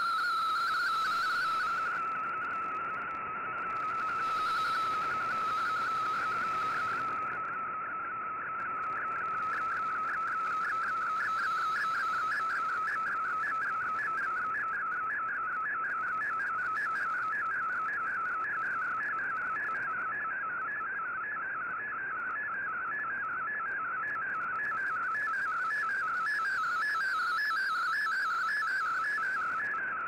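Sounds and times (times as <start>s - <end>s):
faint radio band hiss: 0.0s - 22.6s.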